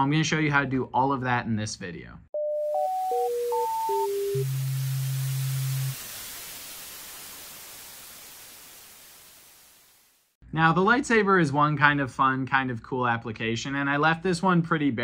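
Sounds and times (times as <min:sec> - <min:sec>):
low steady electronic tone: 0:02.4 - 0:07.1
static hiss: 0:03.4 - 0:10.4.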